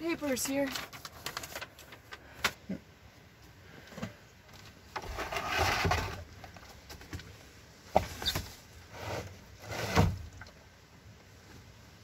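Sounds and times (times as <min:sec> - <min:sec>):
plastic jug scraping: 0:04.9 - 0:06.6, 0:08.0 - 0:10.5.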